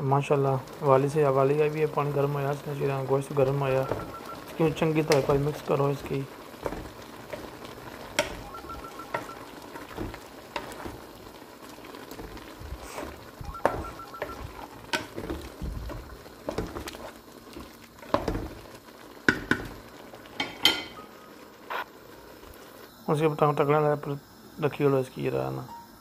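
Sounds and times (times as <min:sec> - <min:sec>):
liquid sloshing in pot: 0:03.8 - 0:20.6
spoon knocking and scraping pot: 0:06.6 - 0:11.0, 0:12.2 - 0:17.1, 0:19.3 - 0:19.8, 0:20.4 - 0:21.0.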